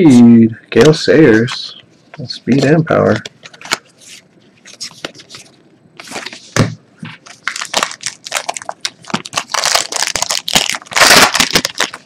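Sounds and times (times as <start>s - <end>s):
plastic wrapper crinkling: 7.2s - 12.0s.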